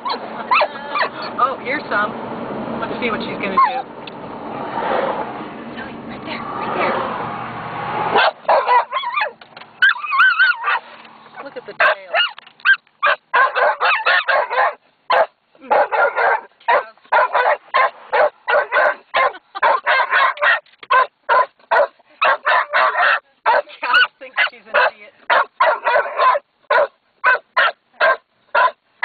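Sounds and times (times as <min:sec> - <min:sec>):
dog barking sharply: 0:08.2 - 0:10.9, 0:11.8 - 0:24.1, 0:24.8 - 0:28.8.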